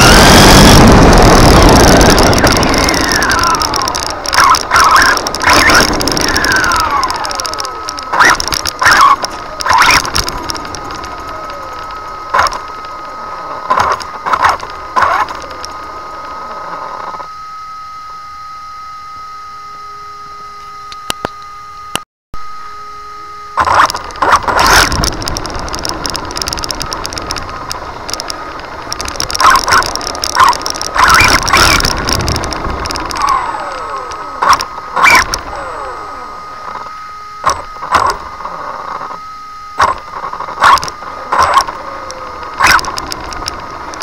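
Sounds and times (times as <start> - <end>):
high electronic whine: 0.0 - 44.0
rc car motor whine: 0.0 - 44.0.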